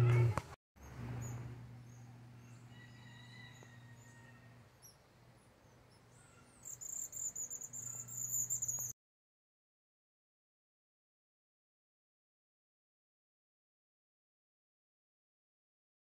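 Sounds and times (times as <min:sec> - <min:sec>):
low steady hum: 0:00.0 - 0:08.9
faint bird chirps: 0:00.8 - 0:09.0
pulsing insect trill: 0:06.6 - 0:08.9.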